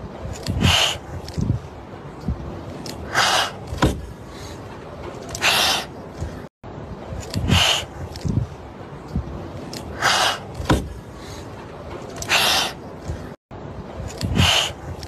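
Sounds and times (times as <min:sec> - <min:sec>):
kitten hissing: 0:07.4 - 0:07.9, 0:14.3 - 0:14.8.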